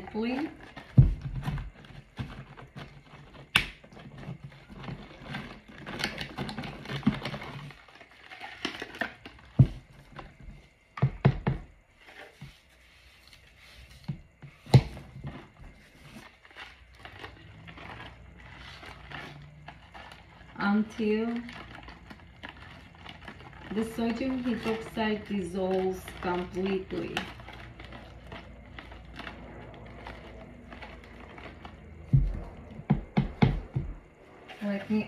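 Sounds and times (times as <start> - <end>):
spatula scraping and crunching: 0.0 - 10.8, 11.7 - 35.0
knocks against plastic jug: 32.1 - 34.0.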